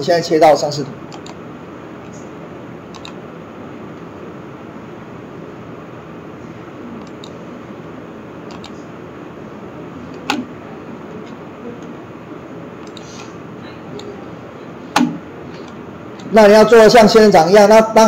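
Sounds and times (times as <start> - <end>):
microphone hiss: 0.0 - 18.0
mouse and keyboard clicks: 1.1 - 1.4, 2.9 - 3.2, 7.0 - 7.4, 8.5 - 8.9, 10.1 - 10.5, 12.8 - 13.3.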